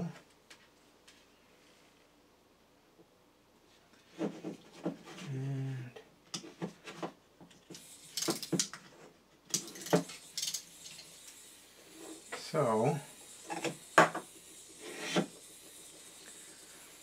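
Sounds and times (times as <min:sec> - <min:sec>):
plastic parts clicking and clattering: 0:07.5 - 0:08.9, 0:09.5 - 0:11.0.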